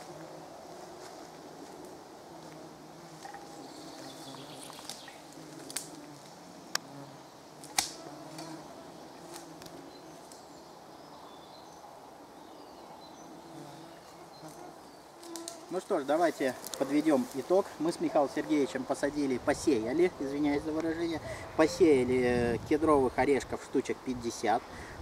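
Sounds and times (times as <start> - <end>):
mosquitoes buzzing: 0.0 - 18.7.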